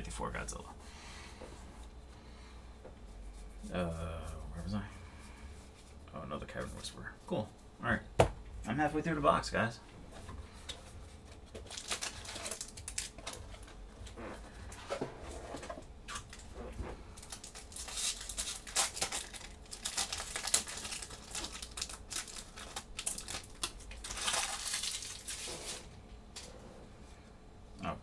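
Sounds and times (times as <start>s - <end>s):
cards rustling: 10.5s - 14.8s, 17.2s - 25.9s
foil wrapper crinkling and tearing: 11.5s - 13.8s, 17.2s - 25.9s.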